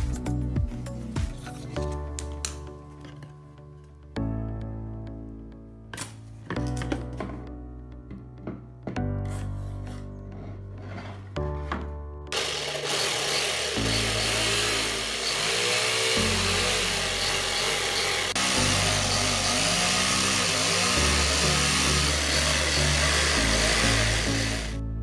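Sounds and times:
background music: 0.0 - 25.0
jigsaw cutting wood: 12.3 - 24.8.

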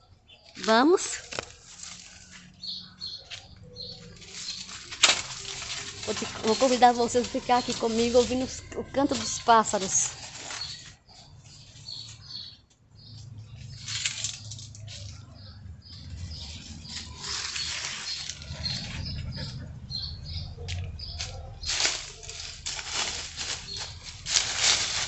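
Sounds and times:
small birds chirping: 0.0 - 25.0
bursts of rustling: 3.9 - 12.2, 16.2 - 19.3, 21.1 - 25.0.

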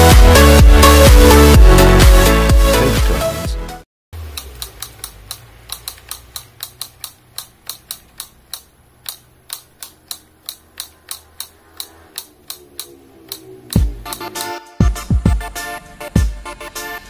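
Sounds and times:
wooden toy beak tapping: 4.3 - 14.6.

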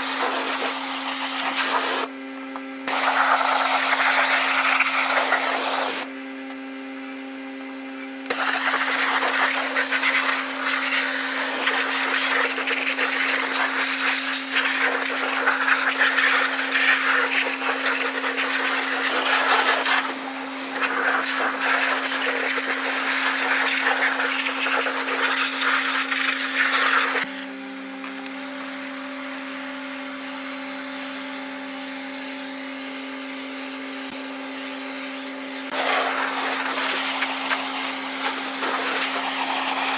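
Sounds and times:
water jet hissing: 0.0 - 2.1, 2.9 - 6.1, 8.3 - 27.3, 35.7 - 39.9
pressure washer pump hum: 0.0 - 6.5, 8.3 - 27.5, 28.2 - 39.9.

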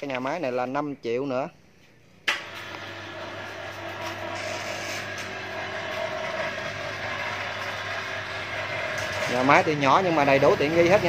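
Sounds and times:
mill machinery running: 2.3 - 11.0.

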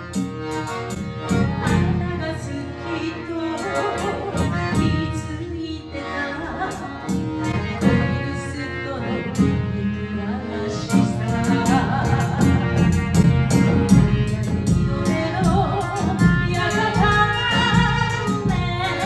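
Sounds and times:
accordion: 0.0 - 19.0
woman singing: 1.8 - 12.9, 15.0 - 19.0
drums and bass drum: 11.9 - 19.0.

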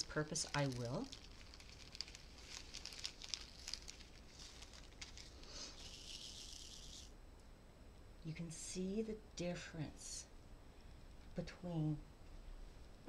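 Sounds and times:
plastic bag crinkling: 0.0 - 7.1
small beads pattering on plastic: 0.0 - 7.1
soft hiss of beads settling: 0.0 - 7.2.

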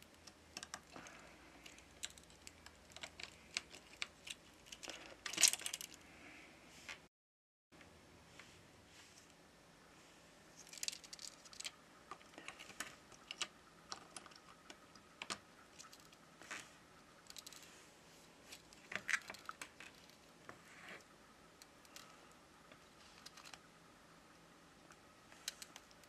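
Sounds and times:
small parts clicking and tapping: 0.0 - 6.0, 10.6 - 16.2, 17.2 - 17.7, 18.5 - 22.1, 22.7 - 23.7, 24.8 - 26.0.

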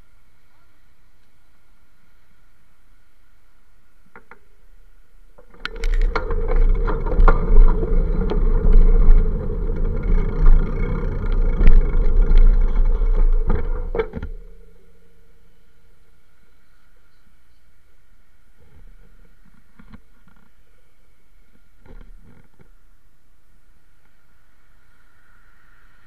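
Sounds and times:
bicycle rattling over pavement: 5.4 - 15.2.

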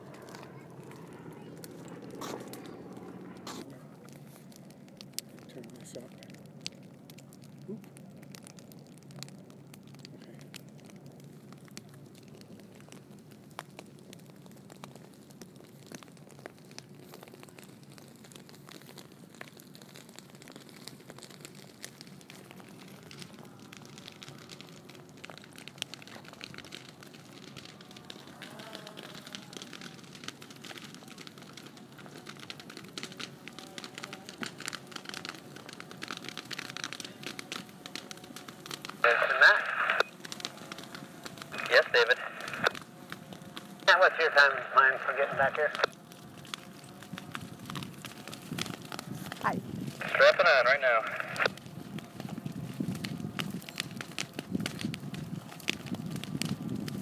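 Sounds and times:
dry grass crackling as it burns: 0.0 - 57.0
low steady hum: 35.8 - 51.6.

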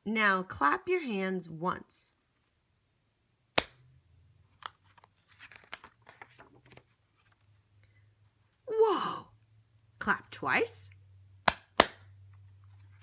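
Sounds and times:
book page turning: 4.5 - 7.6, 12.5 - 13.0.

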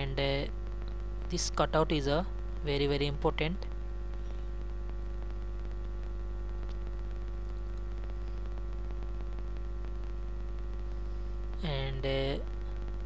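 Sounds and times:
background hiss: 0.0 - 13.0
electrical mains hum: 0.0 - 13.0
faint clicks: 4.1 - 9.7.

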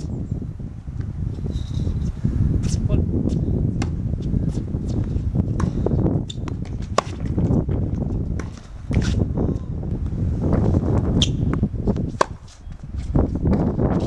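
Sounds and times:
wind on microphone: 0.0 - 14.0
tennis ball hit and bouncing: 3.8 - 4.6, 5.5 - 9.2, 11.2 - 12.6.

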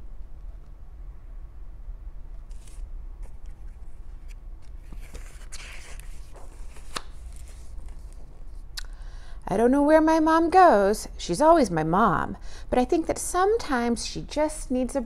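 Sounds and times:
low room hum: 0.0 - 15.0
page rustle: 2.5 - 8.6.

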